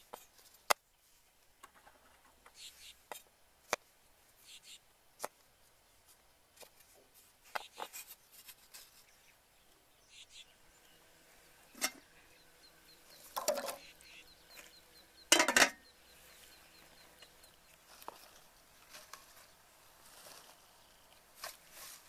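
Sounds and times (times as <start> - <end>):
faint high chirps: 9.1 - 18.3
pot lid clattering against pot: 11.8 - 12.0, 15.3 - 15.8.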